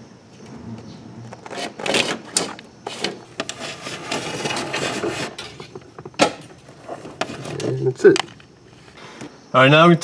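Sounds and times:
wires scraping through rubber grommet: 0:01.3 - 0:09.0.

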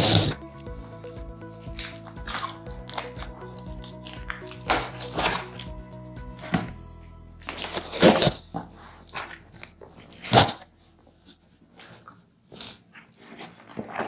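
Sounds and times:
cardboard crunches: 0:07.4 - 0:10.7, 0:11.6 - 0:14.0.

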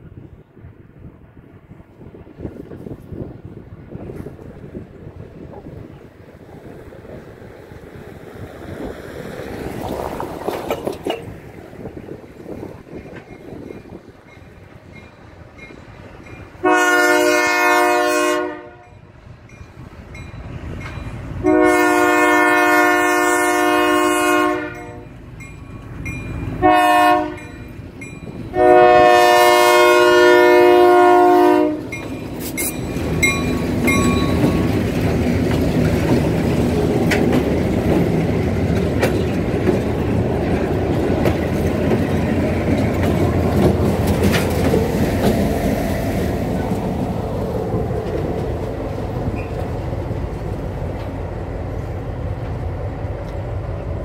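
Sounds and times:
wheels clattering over rail joints: 0:07.6 - 0:16.5, 0:31.8 - 0:51.3
locomotive air horn blasts: 0:16.6 - 0:19.0, 0:21.4 - 0:25.2, 0:26.6 - 0:27.6, 0:28.5 - 0:32.0.

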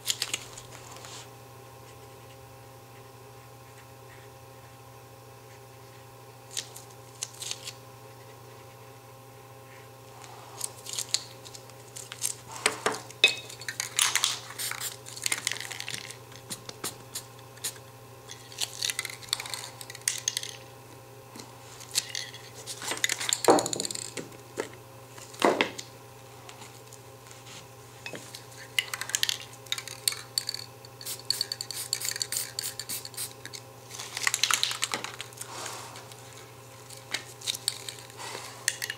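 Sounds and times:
spray paint can hissing: 0:31.0 - 0:33.4.

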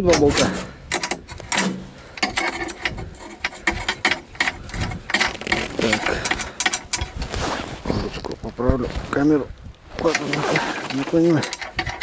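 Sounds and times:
wrench clicking and scraping on metal: 0:00.0 - 0:07.2, 0:10.1 - 0:12.0.

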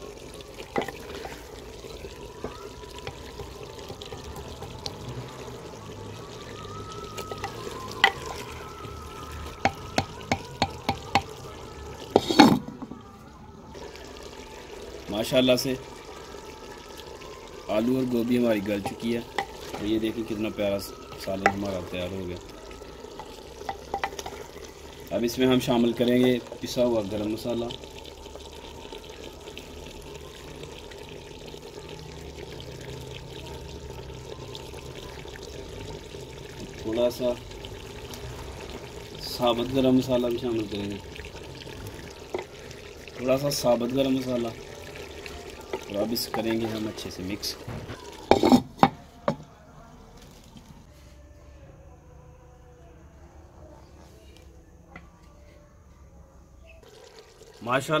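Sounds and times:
curry bubbling in a pot: 0:00.0 - 0:49.5, 0:56.8 - 0:58.0
wooden ladle stirring thick curry: 0:00.6 - 0:02.3
ladle knocking on pot rim: 0:00.8 - 0:01.1, 0:09.6 - 0:11.4, 0:18.8 - 0:19.8, 0:23.7 - 0:24.4, 0:48.3 - 0:49.5.

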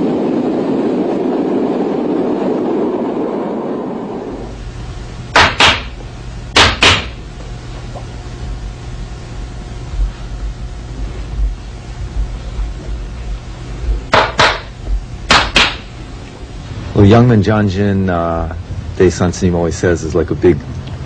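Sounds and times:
low hum: 0:00.0 - 0:21.0
steady noise: 0:00.0 - 0:21.0
sharp knocks: 0:05.3 - 0:07.2, 0:14.0 - 0:15.9.

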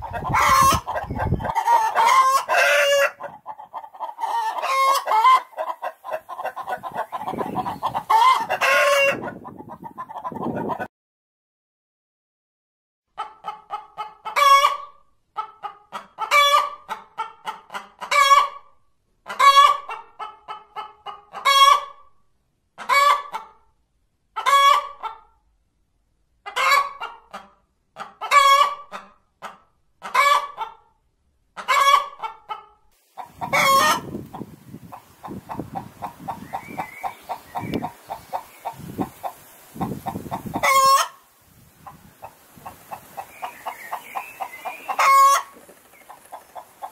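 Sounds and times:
hen cackling: 0:00.0 - 0:10.9, 0:13.2 - 0:18.6, 0:31.6 - 0:46.9
outdoor background noise: 0:00.0 - 0:10.9, 0:13.1 - 0:46.9
faint fast clucking: 0:03.2 - 0:10.9.

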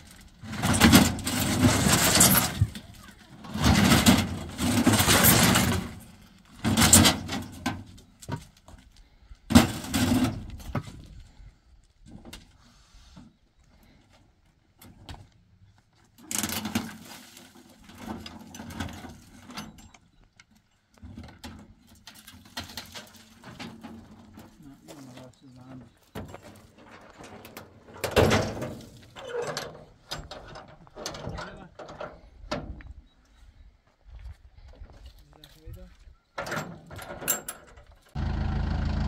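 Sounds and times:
concrete blocks scraping on metal: 0:00.4 - 0:02.8, 0:03.4 - 0:06.1.

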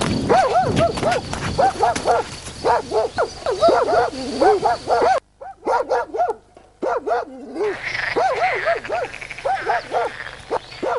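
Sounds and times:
dog barking rapidly: 0:00.3 - 0:10.9.

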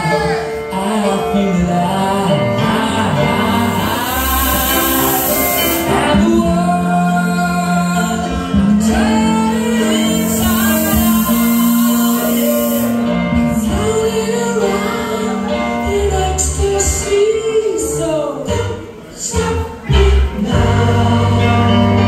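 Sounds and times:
instrumental accompaniment: 0:00.0 - 0:22.0
person singing: 0:00.0 - 0:22.0
held bass notes: 0:00.8 - 0:17.1.

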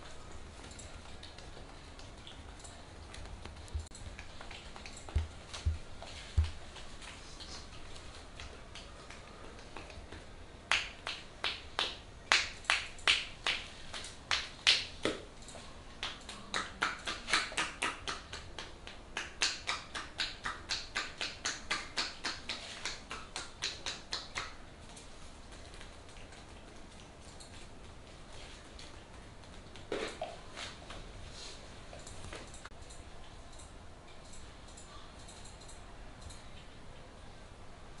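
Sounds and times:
hands slapping skin: 0:08.4 - 0:15.2, 0:16.0 - 0:24.6.

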